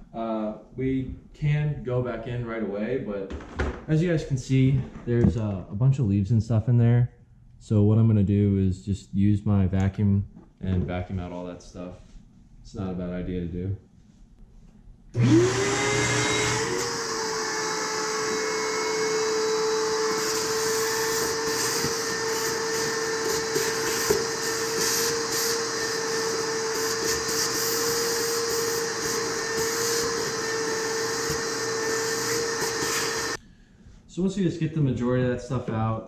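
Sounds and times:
vacuum cleaner motor whine: 15.2s - 33.4s.

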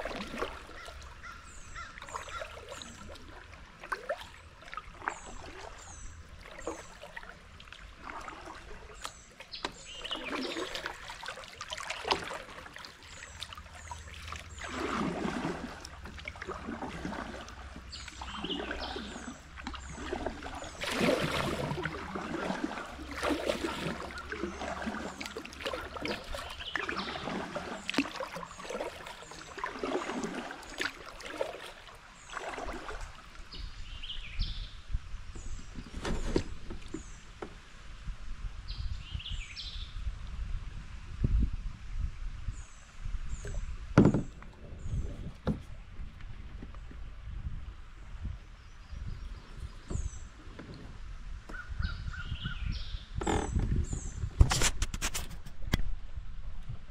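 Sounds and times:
kayak paddle splashing and dripping: 0.0s - 34.6s.

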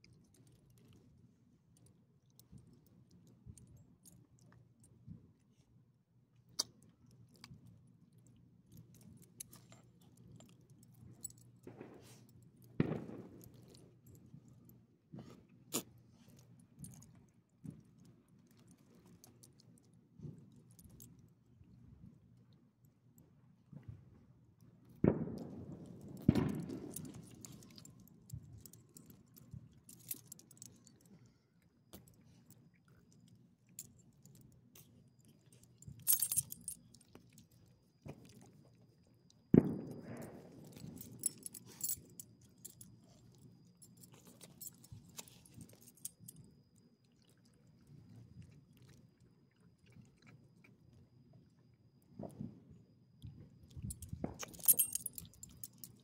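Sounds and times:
dog collar tag jingling: 35.9s - 36.9s, 40.7s - 43.2s, 53.9s - 56.0s.

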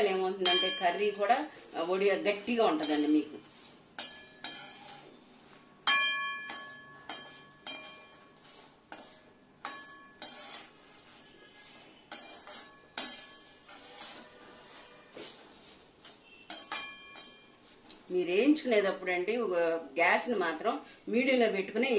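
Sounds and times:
steel skimmer scraping iron pan: 1.8s - 5.2s, 6.5s - 17.4s.

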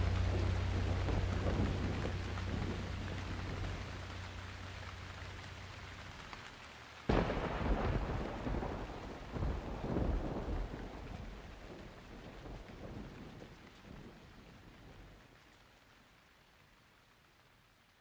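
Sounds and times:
thunder rumbling: 0.0s - 6.2s, 7.1s - 15.2s
rain falling: 0.0s - 18.0s.

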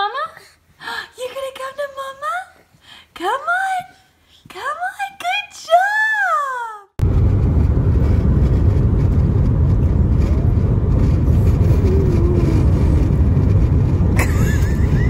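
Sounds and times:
car road and engine rumble: 7.0s - 15.0s.

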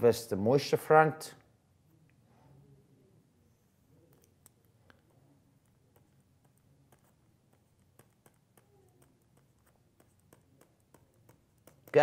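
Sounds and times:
low room hum: 0.0s - 12.0s
stylus tapping on tablet: 4.1s - 12.0s.

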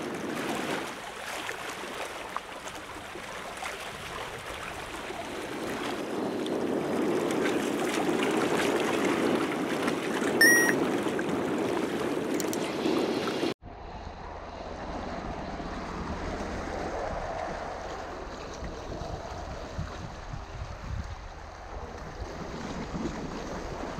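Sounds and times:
water lapping against a seawall: 0.0s - 13.6s, 15.3s - 23.9s
wind on microphone: 3.0s - 23.9s
short high-pitched tone: 10.4s - 10.8s.

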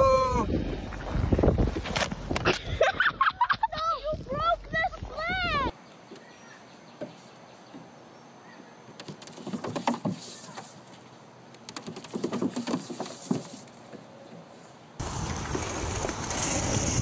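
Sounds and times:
dog paws scratching on plastic slide: 9.0s - 11.0s, 11.7s - 13.9s.

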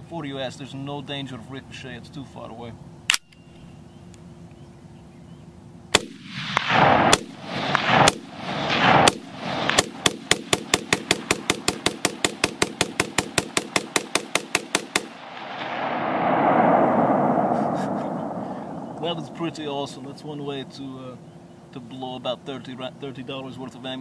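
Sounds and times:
rifle shots with echo: 5.9s - 20.2s
rapid rifle fire: 6.0s - 16.0s.

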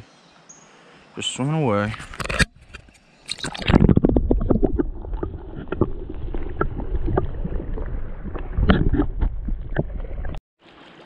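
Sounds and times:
muffled underwater stream rushing: 3.3s - 10.4s.

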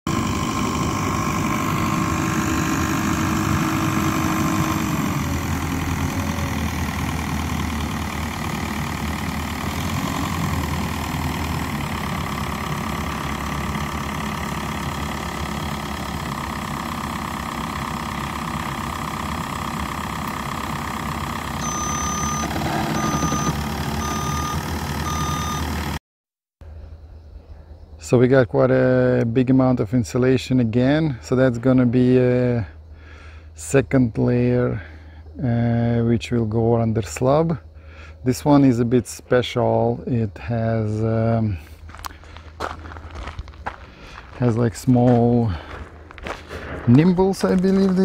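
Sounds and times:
forklift engine running: 0.1s - 26.0s, 40.2s - 48.0s
reversing alarm beeping: 21.6s - 25.8s.

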